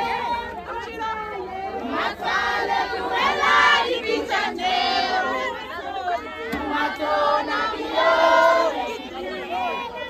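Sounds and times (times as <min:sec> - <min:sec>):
crowd singing and calling out: 0:00.0 - 0:10.0.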